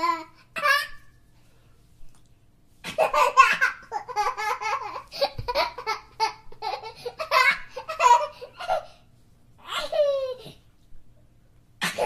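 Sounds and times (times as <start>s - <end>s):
young child laughing: 2.9s - 9.0s, 9.6s - 10.6s.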